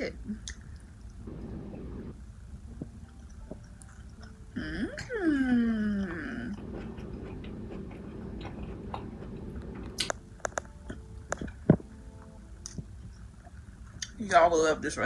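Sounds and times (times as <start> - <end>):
wet mouth clicks and smacks: 0.4 - 1.2, 9.8 - 11.6
person chewing food: 2.8 - 4.5, 6.1 - 11.9, 12.6 - 14.2
person humming mmm: 4.2 - 6.6.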